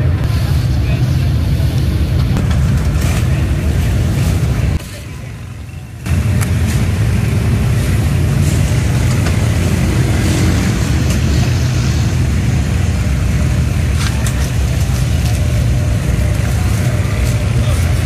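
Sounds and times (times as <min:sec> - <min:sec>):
gas burners roaring: 0:00.0 - 0:18.0.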